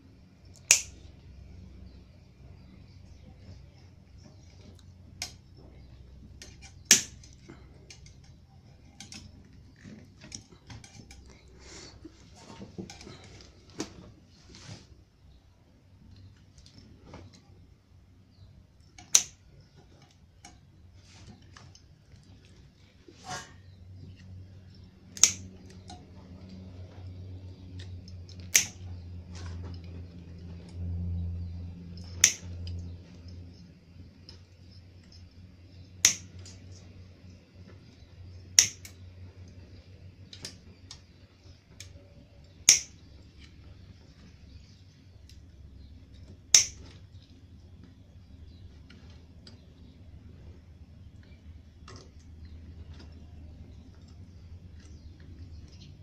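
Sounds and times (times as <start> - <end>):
low steady hum: 0.0 - 56.0
pliers snipping wires: 0.6 - 1.0, 6.4 - 9.3, 18.9 - 19.4, 25.1 - 26.0, 28.4 - 28.8, 32.0 - 32.5, 36.0 - 36.6, 38.6 - 39.0, 42.6 - 43.0, 46.5 - 46.9
cables rustling: 1.9 - 30.8.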